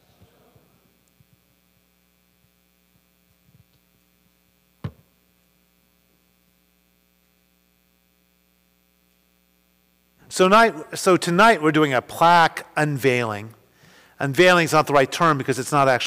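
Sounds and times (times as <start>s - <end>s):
electrical mains hum: 0.0s - 16.0s.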